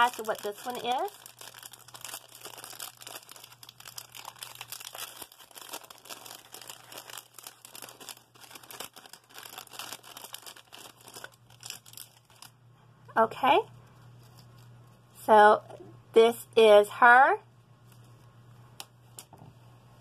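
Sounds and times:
plastic wrapper crinkling: 0.0 - 12.6, 14.1 - 15.0.

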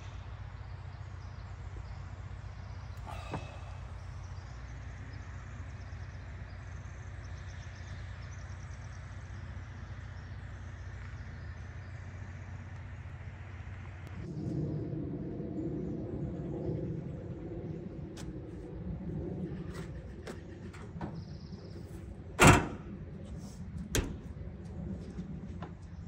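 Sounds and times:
faint bird chirps: 0.0 - 11.9
low rumble: 0.0 - 26.0.

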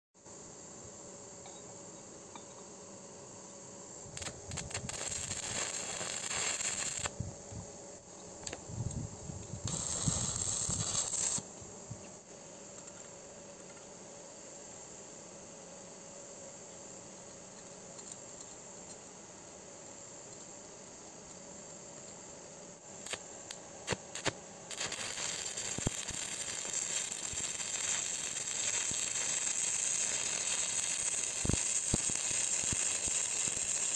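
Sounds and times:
welding arc crackling and hissing: 4.0 - 7.2, 9.3 - 11.6, 23.0 - 33.9.

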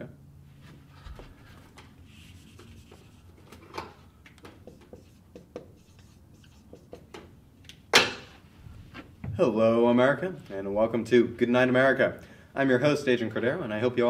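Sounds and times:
eraser rubbing a whiteboard: 2.0 - 3.4, 4.6 - 7.2.

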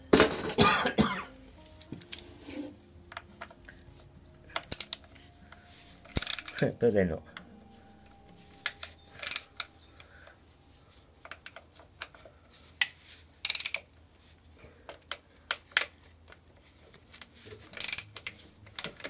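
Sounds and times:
metal tools clinking: 4.5 - 6.9, 17.6 - 19.0
socket ratchet clicking: 13.4 - 13.8, 17.7 - 19.0.

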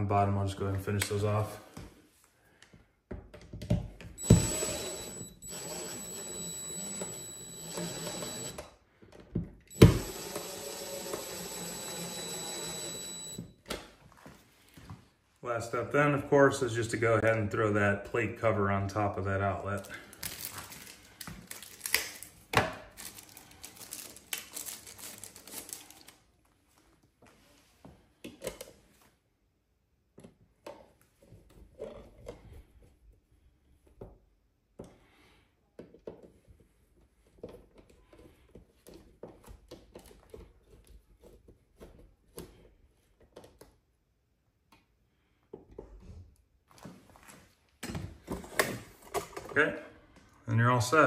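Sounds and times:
plastic packaging crinkling: 19.8 - 26.2.

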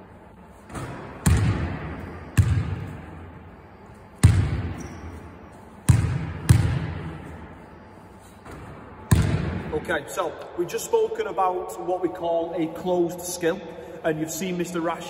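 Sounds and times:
basketball bouncing in hall: 0.7 - 7.7, 8.4 - 10.0.

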